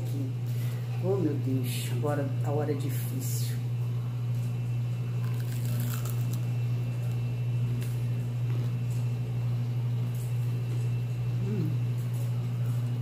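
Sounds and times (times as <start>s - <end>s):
steady low hum: 0.0s - 13.0s
person chewing crunchy food: 5.2s - 8.9s.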